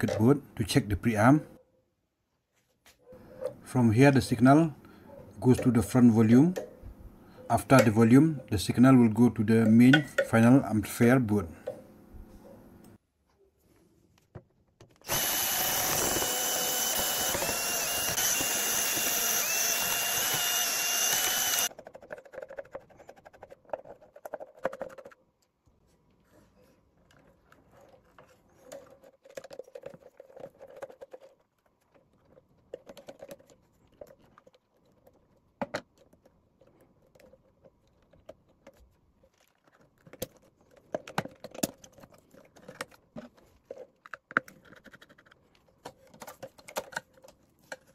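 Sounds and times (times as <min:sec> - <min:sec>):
power tool motor whining: 0:15.0 - 0:21.7.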